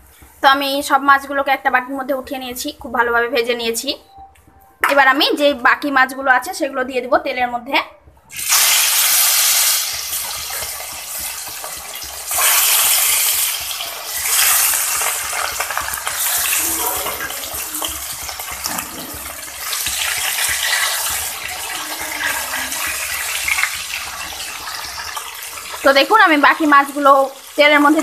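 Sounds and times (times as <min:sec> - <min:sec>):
fish sizzling in hot oil: 0:08.3 - 0:28.0.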